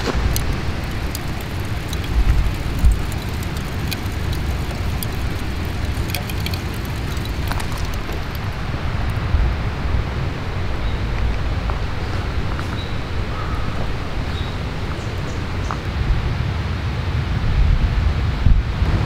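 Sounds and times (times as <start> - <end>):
wind rumbling on microphone: 0.0 - 19.0
faint sharp ticks: 0.3 - 8.6.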